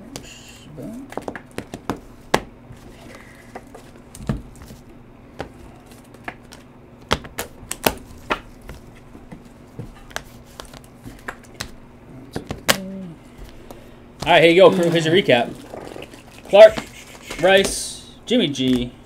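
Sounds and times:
faint steady hum: 0.0s - 19.0s
trading cards clicking and tapping: 1.1s - 2.5s, 3.1s - 14.4s, 16.4s - 17.9s, 18.6s - 18.9s.

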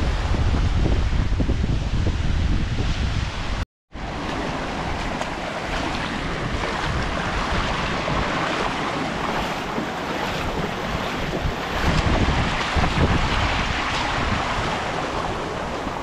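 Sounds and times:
river rushing over pebbles: 4.0s - 16.0s.

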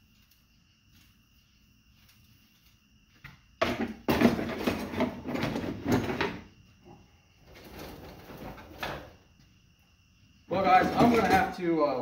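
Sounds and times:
metal bars clattering into bucket: 10.7s - 11.6s.

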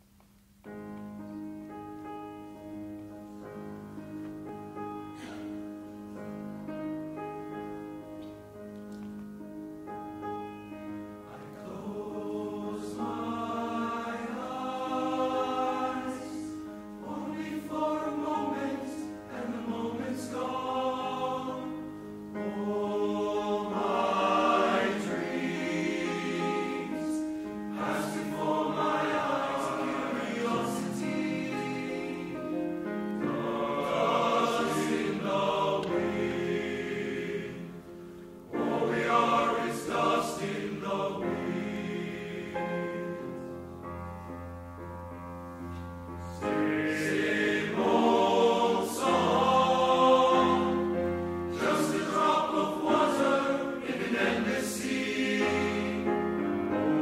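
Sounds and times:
boys' choir singing: 11.3s - 37.9s, 38.5s - 43.4s, 46.4s - 57.0s.

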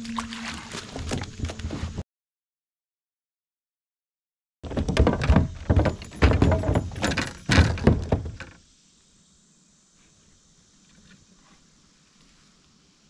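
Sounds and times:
loud thumps and knocks: 4.6s - 8.5s.

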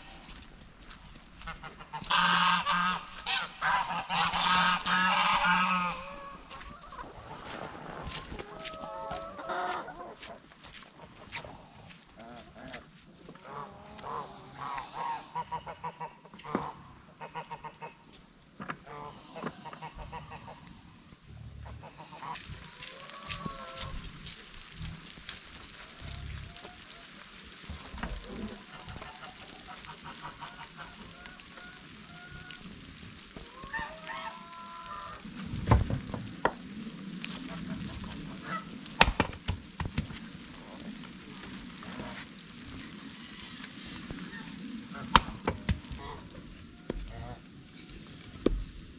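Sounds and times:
rain pattering: 0.0s - 19.0s, 20.0s - 48.9s
chickens clucking: 1.4s - 12.3s
firewood logs knocking together: 35.5s - 36.7s, 38.9s - 40.4s, 45.1s - 47.2s, 48.4s - 48.9s.

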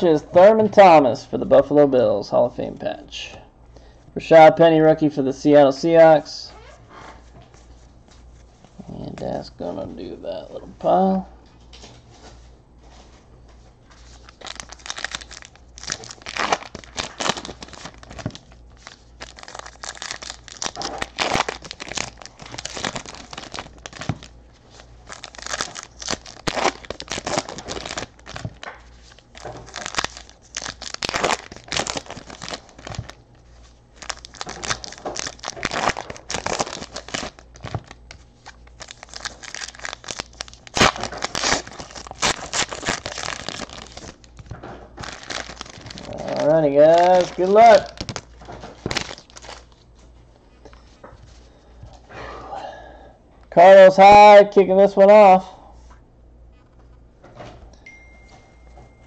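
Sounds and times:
card pack wrappers ripping: 14.0s - 33.2s, 34.0s - 49.8s.

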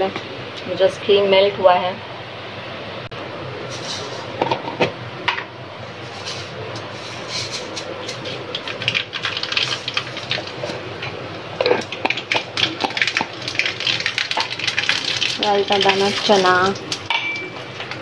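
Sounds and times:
gas burner: 3.0s - 18.0s
ghee hissing and crackling in pan: 5.8s - 18.0s.

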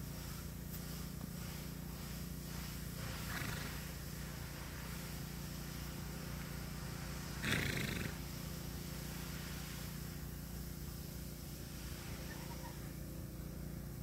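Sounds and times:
horse snorting: 3.2s - 4.0s, 7.4s - 8.3s.

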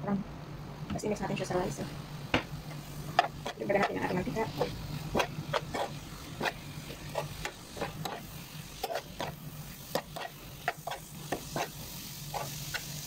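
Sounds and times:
light sizzle of frying: 0.9s - 13.0s
spatula scraping frying pan: 3.0s - 13.0s.

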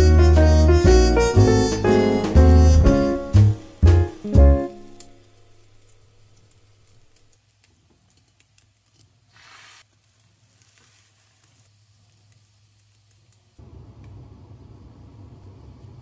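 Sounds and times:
egg sizzling in hot pan: 9.3s - 13.6s.

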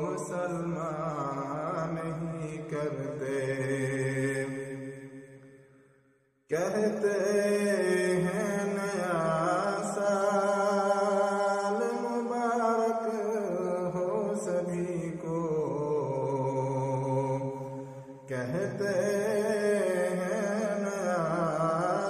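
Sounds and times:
man chanting: 0.0s - 5.1s, 6.5s - 22.0s.

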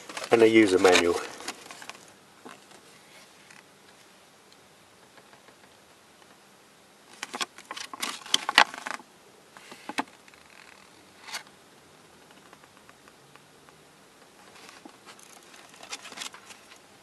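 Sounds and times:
paper rustling and crackling: 0.0s - 3.6s, 7.2s - 9.0s, 14.4s - 16.9s.

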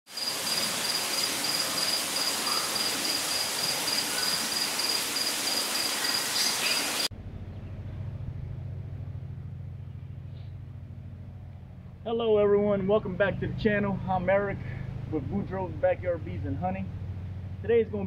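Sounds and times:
cricket trilling: 0.1s - 7.1s
insect chorus: 0.1s - 7.1s
low hum: 7.1s - 18.0s.

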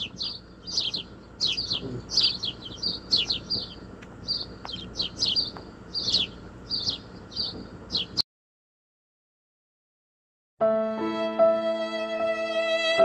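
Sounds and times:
small birds chirping: 0.0s - 8.2s.

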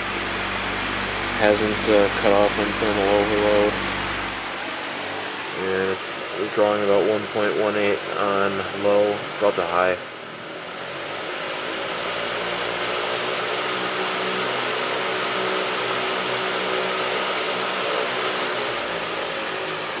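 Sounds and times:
electric fan air rush: 0.0s - 20.0s
faint motor hum: 0.0s - 20.0s.

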